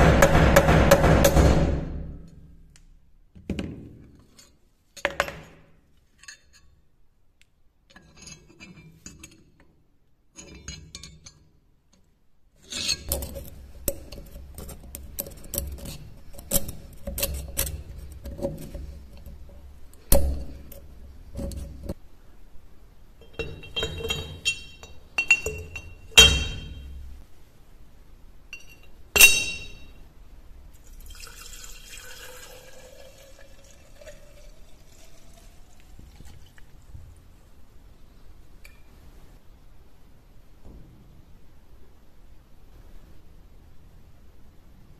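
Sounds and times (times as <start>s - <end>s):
metal clinking against glass jar: 23.2s - 27.0s, 28.6s - 30.0s
liquid pouring into glass jar: 30.8s - 37.0s.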